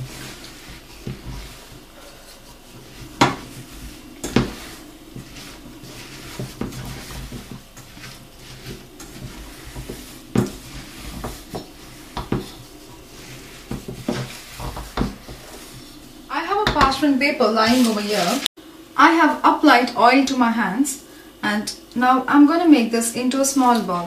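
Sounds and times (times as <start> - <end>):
spoon stirring oats: 0.0 - 16.9.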